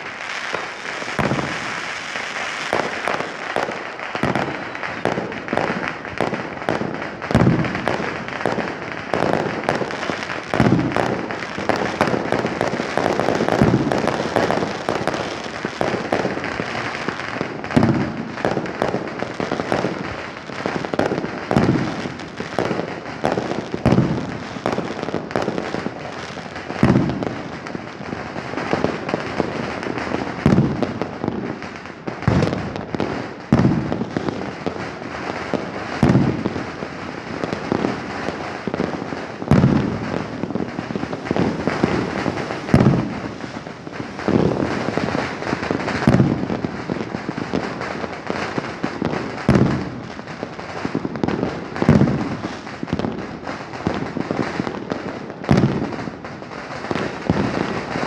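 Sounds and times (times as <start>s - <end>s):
fireworks bangs: 0.0s - 58.0s
fireworks crackling: 0.0s - 58.0s.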